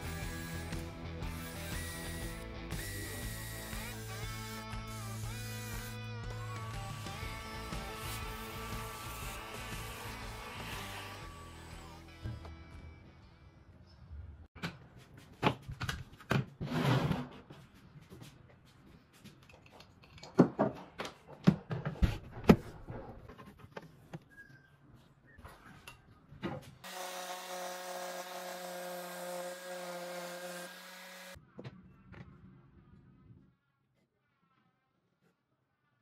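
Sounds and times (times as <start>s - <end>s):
electric planer whine: 0.0s - 12.5s, 26.9s - 31.4s.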